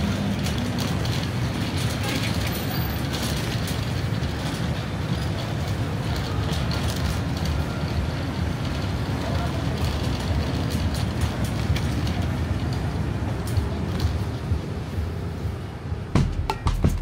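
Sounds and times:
cart wheels rolling on concrete: 0.0s - 17.0s.

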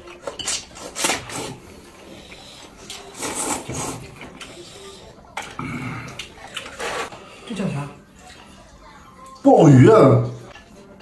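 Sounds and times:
noodles being slurped: 0.7s - 7.3s.

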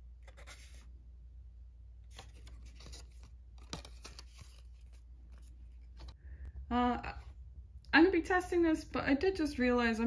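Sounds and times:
paper rustling and crinkling: 2.1s - 6.2s.

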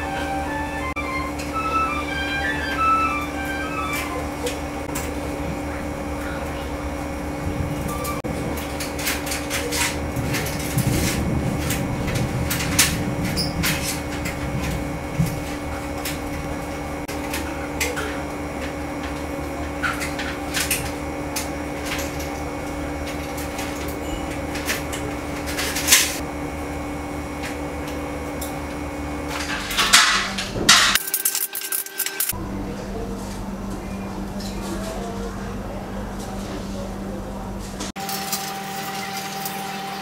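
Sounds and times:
steady background hum: 0.0s - 40.0s
small tools clicking on metal: 30.9s - 32.4s.

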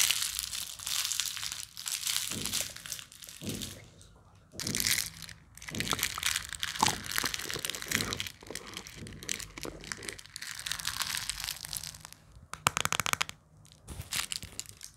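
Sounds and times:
plastic lid scraping and clicking: 6.8s - 10.3s.

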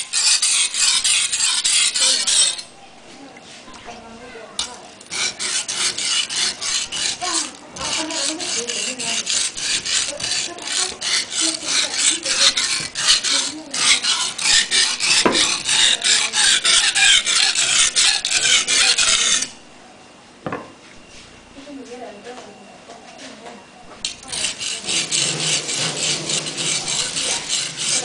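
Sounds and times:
knife scraping on whetstone: 0.0s - 2.8s, 4.6s - 19.6s, 24.0s - 28.0s.

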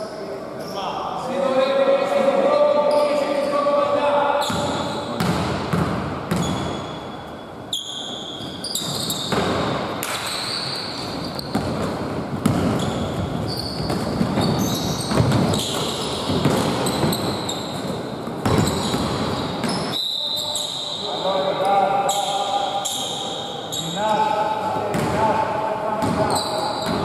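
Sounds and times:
sneakers squeaking on wood: 4.4s - 21.0s, 26.0s - 27.0s
basketball bouncing: 4.5s - 6.8s, 11.5s - 17.4s, 18.2s - 19.8s, 26.0s - 27.0s.

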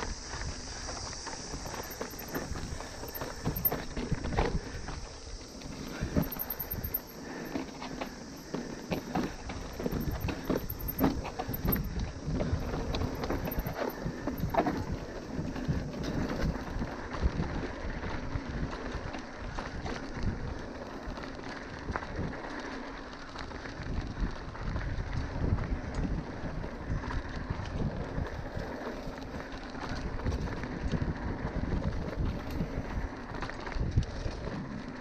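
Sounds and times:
rattles and knocks from bumpy ride: 1.5s - 5.0s, 5.6s - 15.0s.

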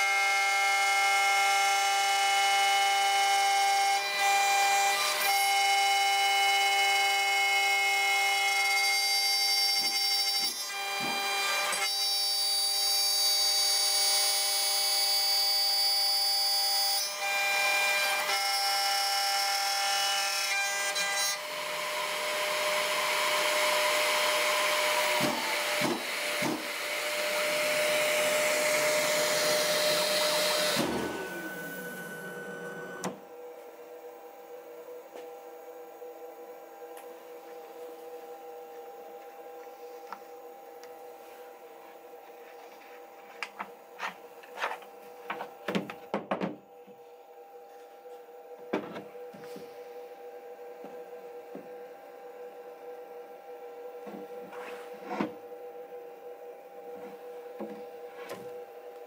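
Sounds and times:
router spindle whining: 21.4s - 33.5s.

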